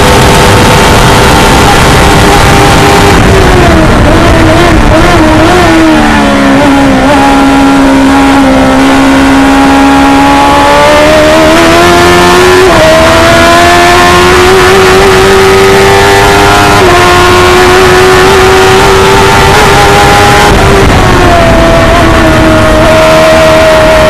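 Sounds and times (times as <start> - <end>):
race car engine under load: 0.0 - 24.0.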